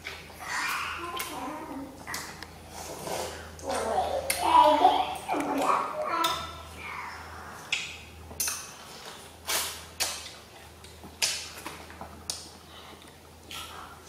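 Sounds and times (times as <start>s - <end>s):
child biting and sucking fruit: 7.7s - 11.6s.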